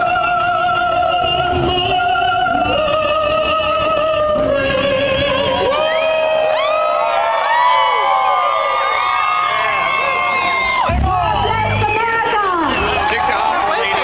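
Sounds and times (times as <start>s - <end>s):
woman singing: 0.0s - 5.9s
crowd cheering and whooping: 5.6s - 14.0s.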